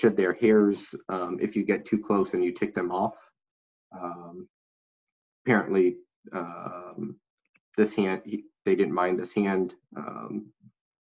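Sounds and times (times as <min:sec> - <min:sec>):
man saying um: 0:00.0 - 0:03.1, 0:04.0 - 0:04.4, 0:05.5 - 0:07.1, 0:07.8 - 0:10.4
man speaking: 0:00.0 - 0:03.2, 0:04.0 - 0:04.4, 0:05.5 - 0:07.1, 0:07.8 - 0:10.4.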